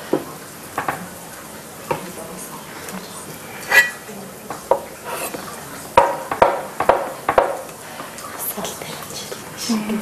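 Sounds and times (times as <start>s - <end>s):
cleaver chopping on wooden board: 6.0s - 7.6s.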